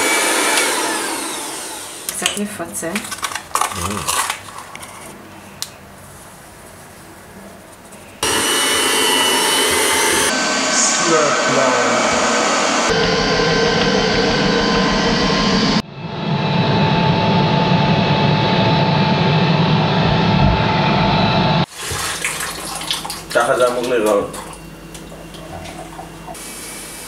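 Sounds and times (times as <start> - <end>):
electric hand mixer in dough: 0.0 - 2.2, 8.2 - 10.5.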